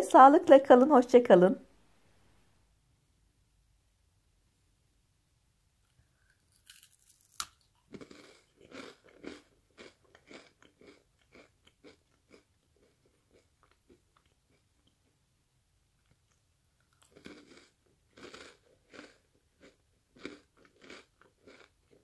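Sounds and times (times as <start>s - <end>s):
dry crunching chewing: 6.2s - 15.1s, 16.0s - 22.0s
cracker snapping: 6.6s - 7.7s.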